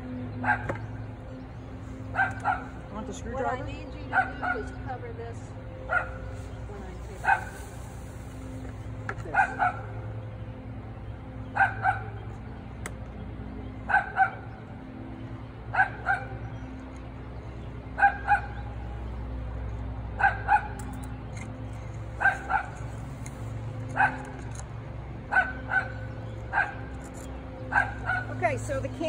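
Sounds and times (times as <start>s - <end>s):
dog barking: 0.4s - 0.7s, 2.1s - 2.7s, 4.1s - 4.8s, 5.9s - 6.2s, 7.2s - 7.6s, 9.3s - 9.9s, 11.6s - 12.1s, 13.9s - 14.4s, 15.7s - 16.3s, 18.0s - 18.6s, 20.2s - 20.8s, 22.2s - 22.8s, 24.0s - 24.3s, 25.3s - 26.8s, 27.7s - 28.3s.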